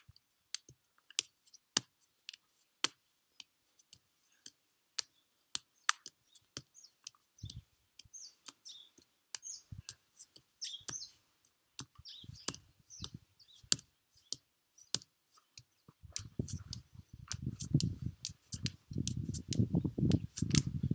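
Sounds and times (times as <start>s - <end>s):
birds chirping: 5.0s - 20.9s.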